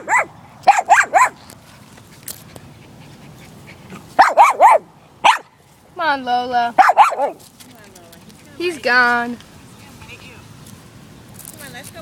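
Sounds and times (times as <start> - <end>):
puppy barking: 0.0 - 1.4, 4.2 - 5.5, 6.8 - 7.4.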